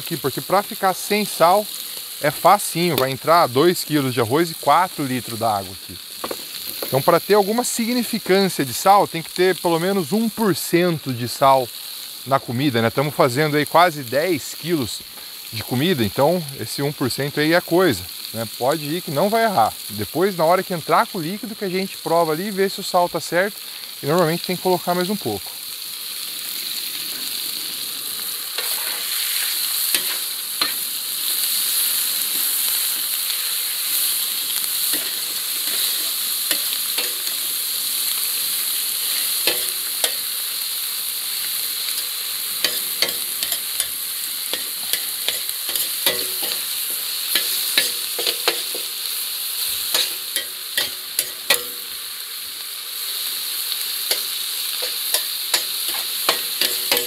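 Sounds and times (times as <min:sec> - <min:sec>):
meat sizzling in a pan: 0:00.0 - 0:57.0
utensil knocking and scraping pan: 0:39.5 - 0:40.2, 0:42.7 - 0:44.0, 0:44.6 - 0:48.9, 0:54.8 - 0:57.0.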